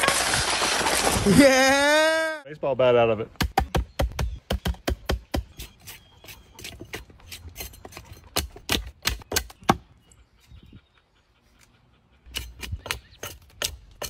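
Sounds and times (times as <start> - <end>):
axe chopping wood: 3.4 - 5.6, 6.9 - 9.8.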